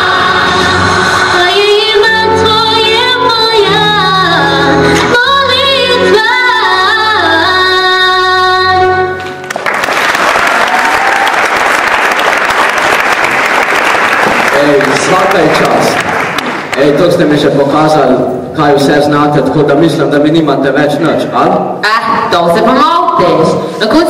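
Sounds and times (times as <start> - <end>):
girl singing into microphone: 0.0 - 9.3
audience applause and cheering: 9.2 - 17.0.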